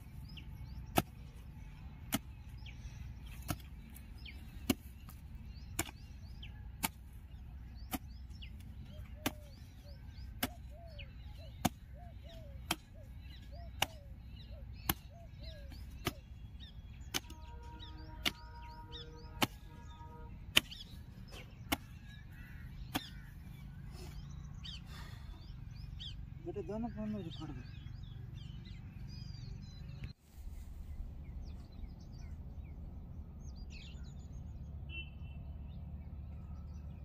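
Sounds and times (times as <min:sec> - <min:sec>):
mattock striking soil: 0:00.7 - 0:10.7, 0:11.5 - 0:14.0, 0:14.7 - 0:23.4.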